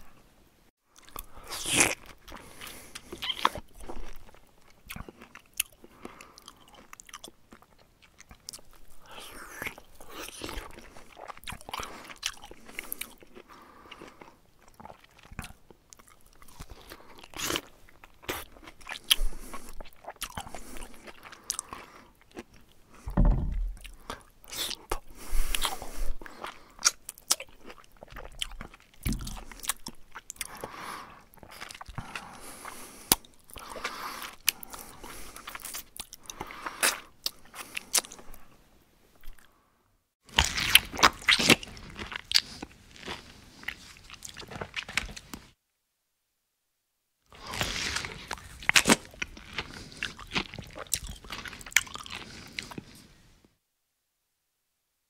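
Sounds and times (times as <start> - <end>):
dull thumps: 23.1 - 23.8
bear chewing and crunching food: 40.3 - 45.5, 47.4 - 53.1.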